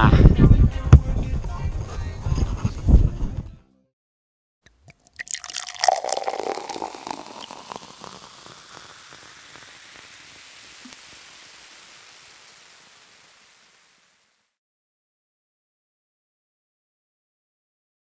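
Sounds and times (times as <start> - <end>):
drink pouring and splashing: 4.7 - 14.1
drink fizzing: 4.7 - 14.4.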